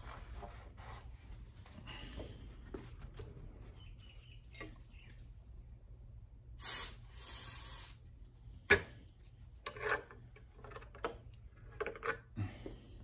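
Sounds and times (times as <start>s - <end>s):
aerosol spray bursts: 6.6s - 8.0s.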